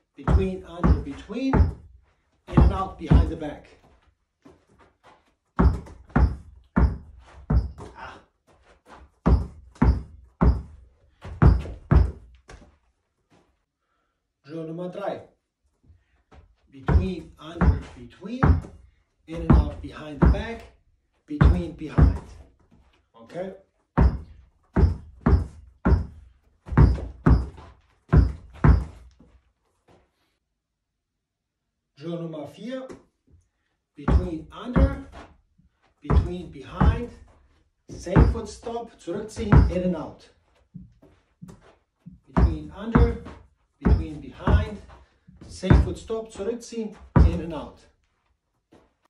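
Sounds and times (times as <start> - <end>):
basketball bouncing on carpet: 0.3 - 1.9, 2.5 - 8.2, 8.9 - 12.8, 16.3 - 20.7, 21.4 - 22.5, 24.0 - 29.4, 34.1 - 35.3, 36.1 - 39.9, 40.7 - 46.4, 47.0 - 47.5.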